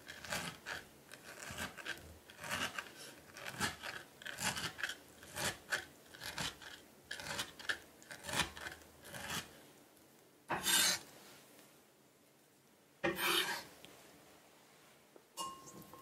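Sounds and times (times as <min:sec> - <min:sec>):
knife scraping board: 0:00.0 - 0:09.6, 0:10.5 - 0:11.1, 0:13.0 - 0:13.7.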